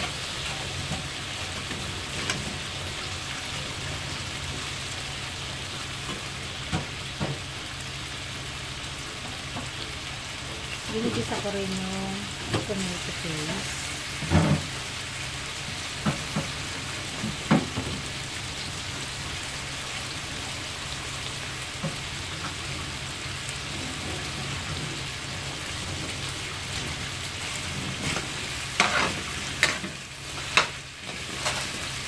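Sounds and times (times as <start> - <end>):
vegetables sizzling in oil: 0.0 - 32.0
metal spoon scraping a wok: 28.0 - 31.8.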